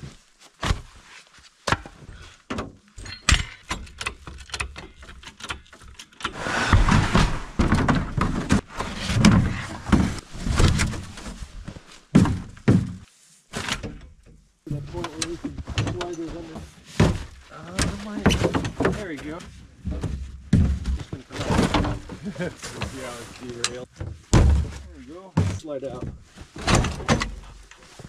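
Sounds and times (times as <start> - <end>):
sharp knocks and clunks: 1.6 - 11.4, 12.1 - 22.3, 23.8 - 27.6
scraping and rustling: 5.0 - 14.1, 14.8 - 28.0
hard thunk: 24.3 - 25.6.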